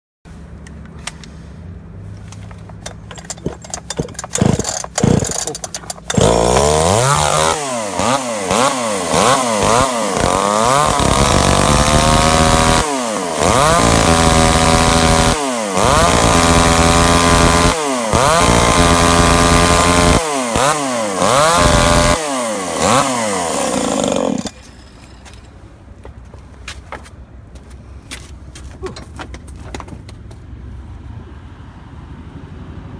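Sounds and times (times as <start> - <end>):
clicks and knocks: 2.4 - 6.3
chainsaw cutting wood: 2.8 - 24.7
chainsaw revving: 2.9 - 24.6.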